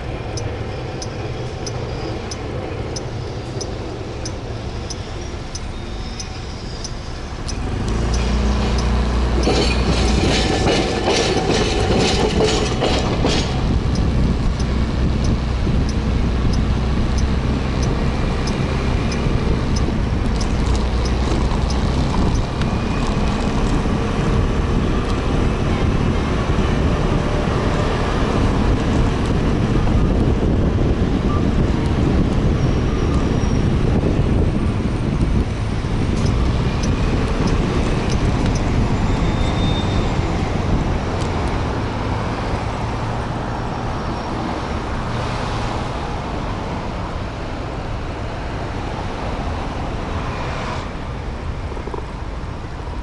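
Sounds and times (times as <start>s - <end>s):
surrounding traffic: 0.0s - 53.0s
wind rush on microphone: 0.0s - 53.0s.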